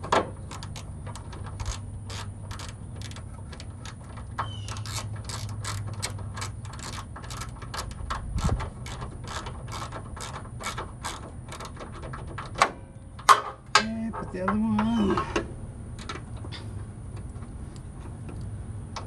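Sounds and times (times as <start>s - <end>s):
socket ratchet clicking: 0.5s - 13.8s.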